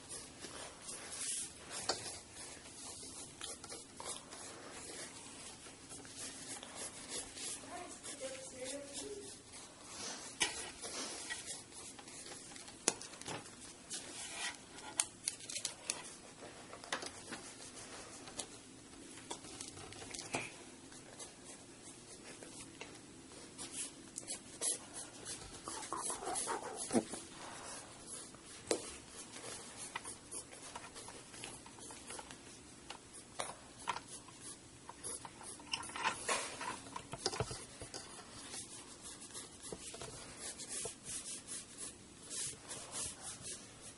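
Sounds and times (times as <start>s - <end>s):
pencil sketching on paper: 0.0s - 12.4s, 23.5s - 32.2s, 37.6s - 43.9s.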